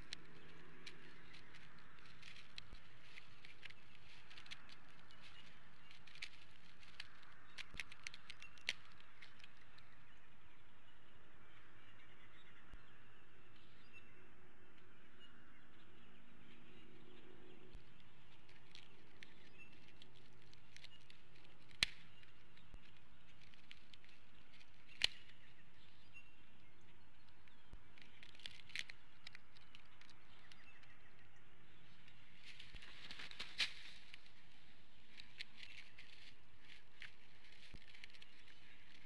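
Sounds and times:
rustle of wings and sticks: 0.0s - 9.9s, 17.7s - 26.0s, 27.7s - 31.1s, 31.9s - 39.0s
faint songbird chirps: 0.0s - 39.0s.

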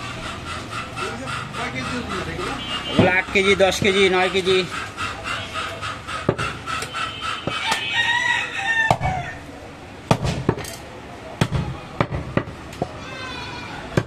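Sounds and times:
drawn-out high call: 0.1s - 9.4s
cleaver chopping on wooden block: 6.2s - 6.6s, 10.1s - 10.7s.

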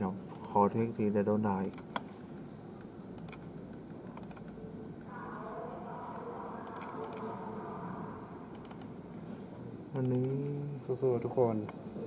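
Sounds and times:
steady background hum: 0.0s - 12.0s
keyboard or mouse clicks: 3.1s - 3.4s, 4.1s - 4.6s, 6.6s - 7.2s, 8.5s - 8.9s, 10.0s - 10.5s.

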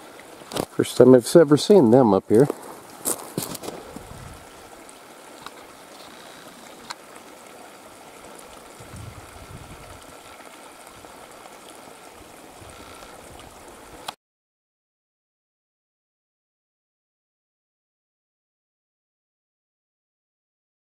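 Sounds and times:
faint ticks: 5.3s - 7.0s, 12.6s - 14.2s.

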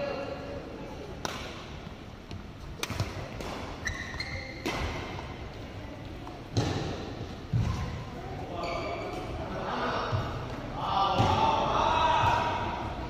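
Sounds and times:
racket striking shuttlecock: 2.8s - 3.8s
shoe squeak: 3.8s - 4.6s, 8.6s - 9.1s.

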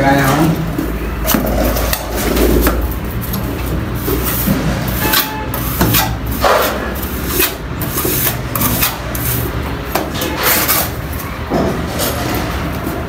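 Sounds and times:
trowel scraping mortar: 4.2s - 11.0s.

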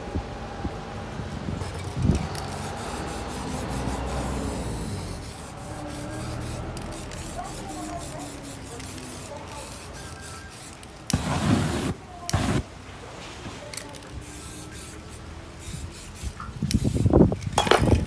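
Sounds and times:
burning spray paint whoosh: 1.7s - 12.7s, 14.2s - 17.3s
aerosol spraying: 2.2s - 12.7s, 13.9s - 17.2s.

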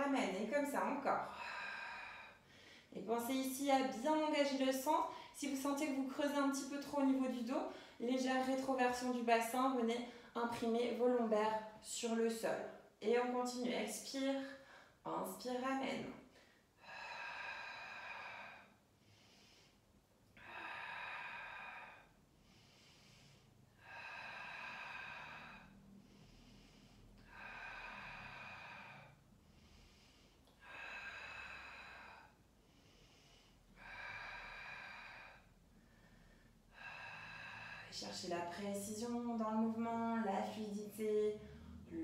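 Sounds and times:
woman breathing slowly: 1.3s - 3.0s, 7.6s - 8.0s, 14.5s - 15.0s, 16.2s - 39.3s, 40.4s - 42.0s.

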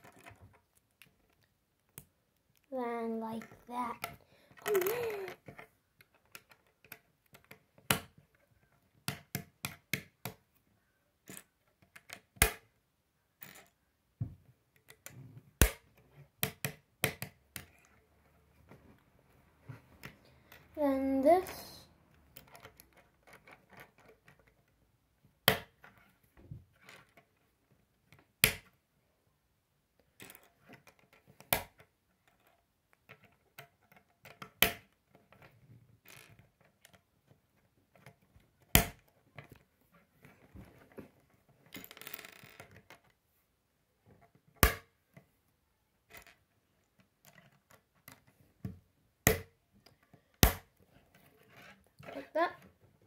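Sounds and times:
plastic pieces snapping together: 15.6s - 17.8s.

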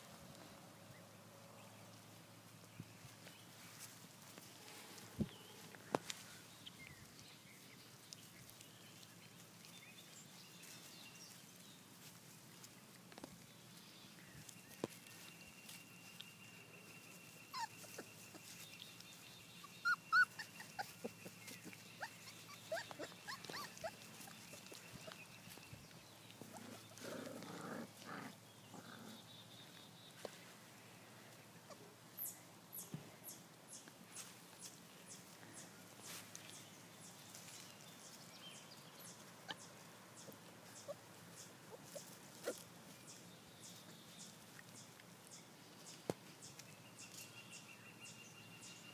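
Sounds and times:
puppies whimpering and yipping: 17.0s - 25.7s, 39.2s - 42.7s.

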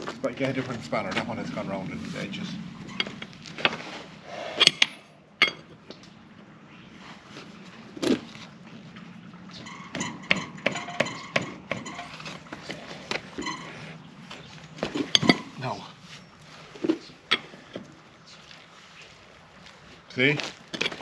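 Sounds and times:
metal spanner clinking on hub nut: 9.6s - 12.2s.

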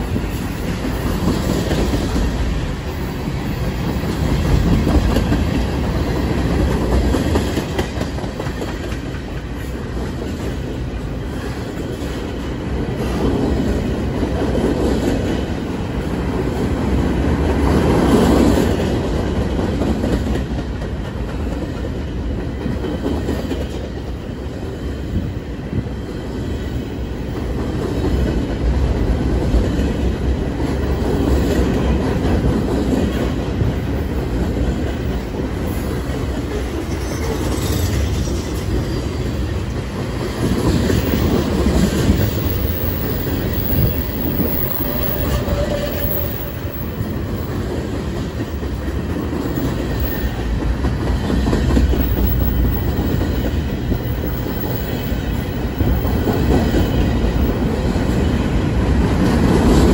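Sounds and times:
freight train rumbling past: 0.0s - 59.9s.

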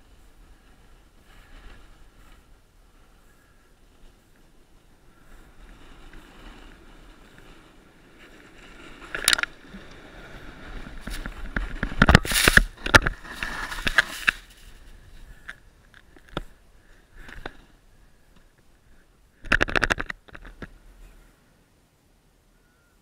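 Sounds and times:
snowboard scraping over snow: 0.0s - 15.4s.

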